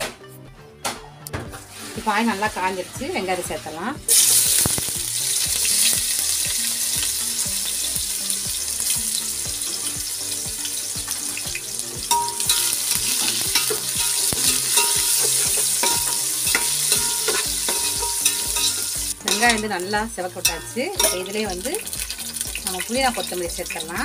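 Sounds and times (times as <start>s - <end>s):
onions sizzling in hot oil: 1.5s - 24.0s
spoon clicking against pot: 13.6s - 19.7s, 20.4s - 21.3s.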